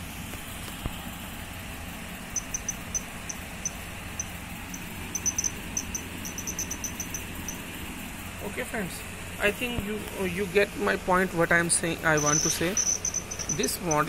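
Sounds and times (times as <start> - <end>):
buzzer high-pitched beeps: 2.4 - 7.6, 12.2 - 14.0.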